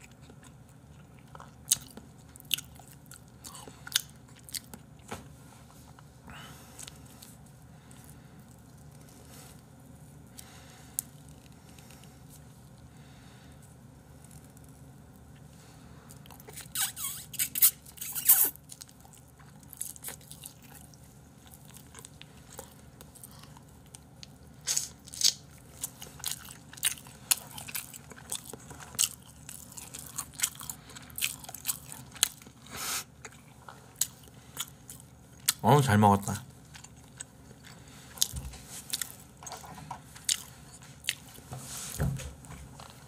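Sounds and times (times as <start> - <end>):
person chewing and biting: 0.0 - 5.0, 16.1 - 35.6, 36.6 - 41.5.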